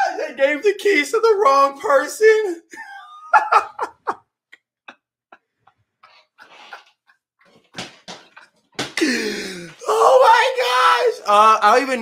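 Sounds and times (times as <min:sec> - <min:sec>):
man laughing breathlessly: 0:08.9 - 0:09.8.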